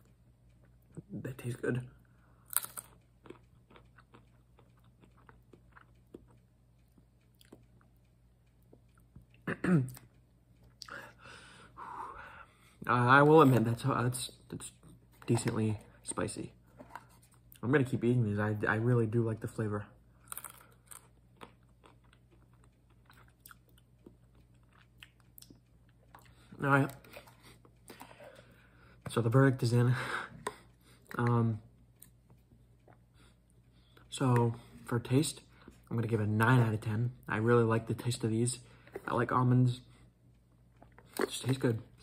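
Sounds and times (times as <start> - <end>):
almonds being chewed: 2.0 - 11.0, 20.1 - 29.3, 40.3 - 42.0.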